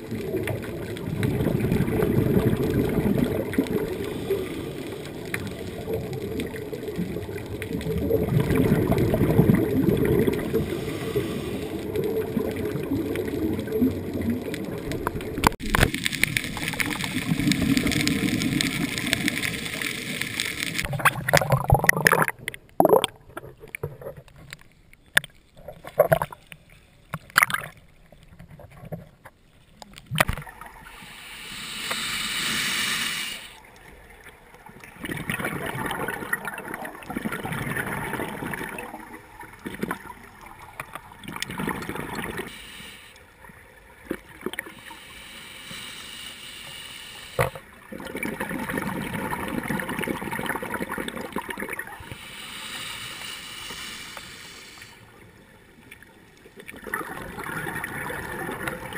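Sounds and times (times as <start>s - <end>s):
scuba exhaust bubbles: 0.0s - 23.9s, 34.6s - 43.0s, 44.0s - 55.2s, 56.5s - 58.9s
hiss: 10.5s - 11.8s, 30.8s - 33.6s, 42.4s - 43.2s, 44.7s - 47.6s, 52.0s - 55.1s.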